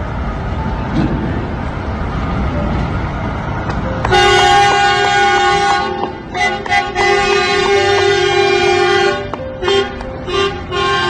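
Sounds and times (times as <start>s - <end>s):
truck diesel engines rumbling: 0.0s - 11.0s
truck air horn blast: 4.1s - 11.0s.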